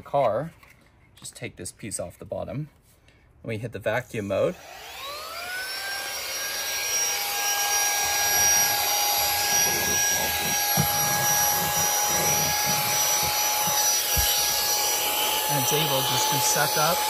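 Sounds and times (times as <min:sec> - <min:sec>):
handheld vacuum whining: 0:04.5 - 0:17.0.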